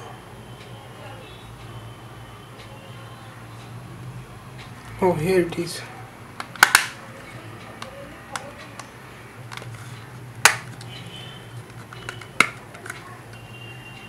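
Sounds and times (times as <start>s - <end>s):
plastic clips snapping loose: 6.4s - 7.0s, 10.4s - 10.9s, 11.6s - 13.1s.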